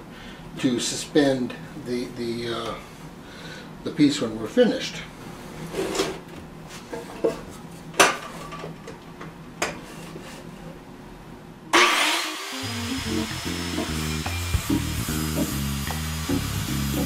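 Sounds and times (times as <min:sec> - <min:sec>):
background music: 0:12.6 - 0:17.0.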